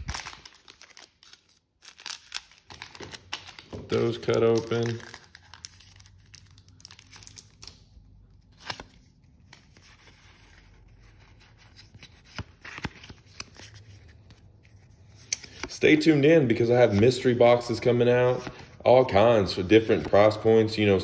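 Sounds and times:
foil wrappers tearing and crinkling: 0.0 - 7.7.

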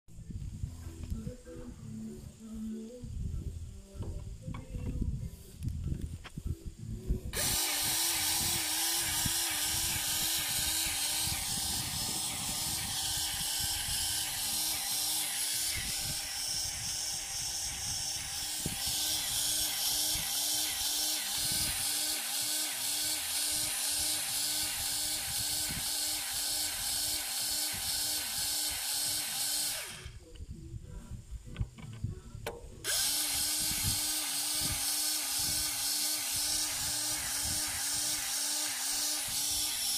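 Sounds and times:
grease gun motor pumping: 7.3 - 30.2, 32.8 - 39.9.

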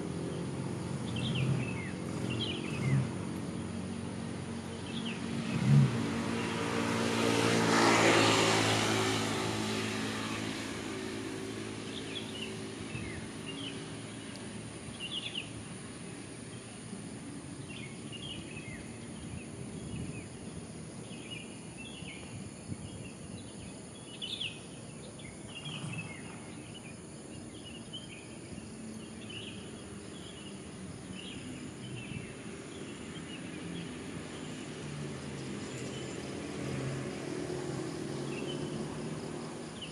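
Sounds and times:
vehicle passing: 0.0 - 15.9, 30.2 - 39.9
small birds chirping: 0.2 - 3.7, 11.1 - 15.6, 17.6 - 36.3.

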